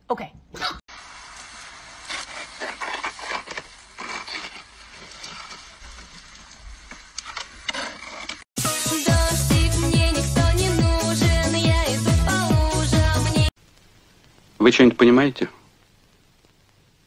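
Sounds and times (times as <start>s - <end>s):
steady outdoor hiss: 0.9s - 17.0s
shovel scraping over snow: 1.9s - 8.5s.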